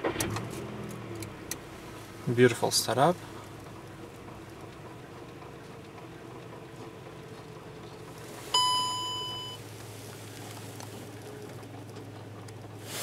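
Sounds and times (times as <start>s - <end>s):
car engine idling hum: 0.0s - 13.0s
electronic warning chime: 8.5s - 9.6s.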